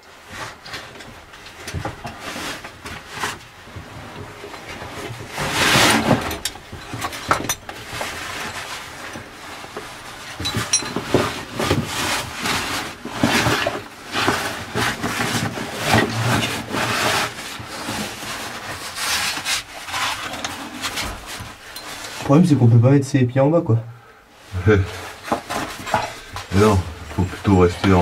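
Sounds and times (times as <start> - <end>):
bag and suit scraping rock: 2.1 - 6.4, 7.8 - 22.4, 24.6 - 28.0.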